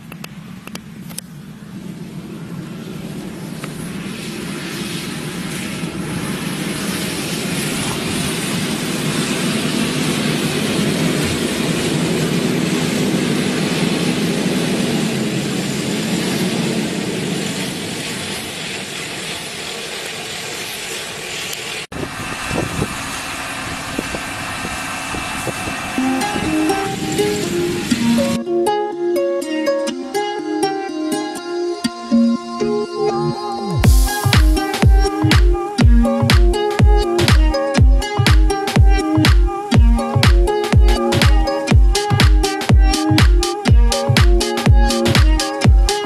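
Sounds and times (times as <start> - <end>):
tractor diesel engine droning: 21.9 - 30.4.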